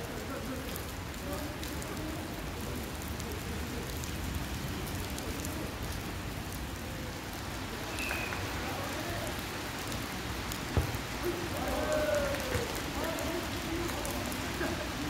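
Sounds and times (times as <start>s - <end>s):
steady rain falling: 0.0s - 15.0s.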